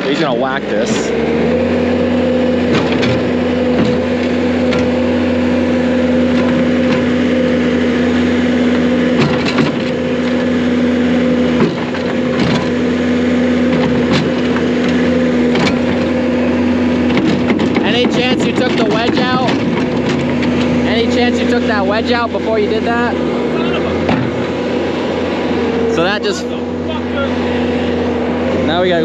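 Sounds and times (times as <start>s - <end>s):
skid steer engine running: 0.0s - 29.0s
sharp knocks on metal: 24.0s - 24.6s.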